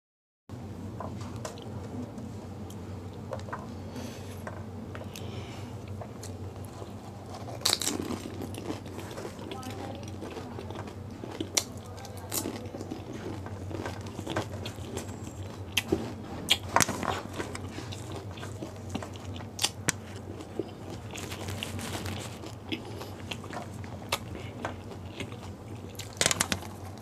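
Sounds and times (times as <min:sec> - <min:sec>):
person chewing crisp food: 0:02.6 - 0:27.0
crisp shells crunching: 0:06.0 - 0:15.8, 0:16.5 - 0:27.0.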